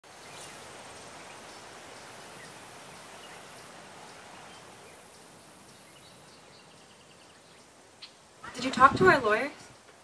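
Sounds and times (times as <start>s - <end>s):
even background hiss: 0.0s - 10.0s
high insect drone: 0.1s - 7.3s.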